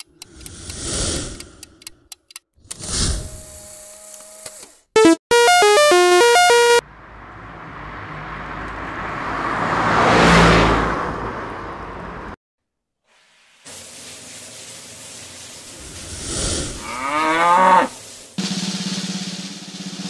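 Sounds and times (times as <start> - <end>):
rushing pass-by with rumble: 7.0 - 12.4
faint hiss: 13.0 - 16.9, 17.8 - 20.0.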